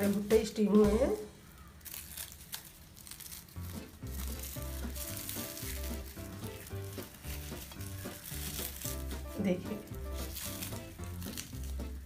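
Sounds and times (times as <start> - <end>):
corn husks crackling and rustling: 0.0 - 12.0
background music with low notes: 3.5 - 12.0.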